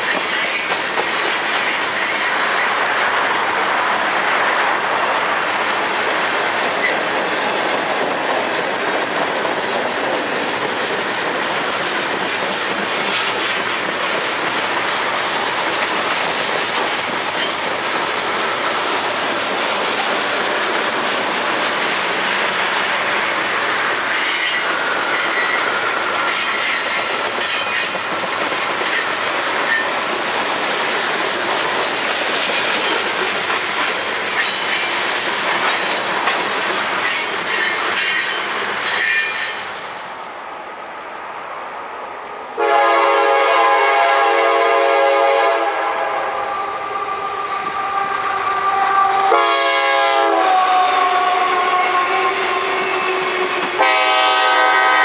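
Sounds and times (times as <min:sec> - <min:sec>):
wheel squeal: 0:37.0 - 0:39.6
locomotive air horn: 0:42.6 - 0:46.8, 0:48.6 - 0:55.0.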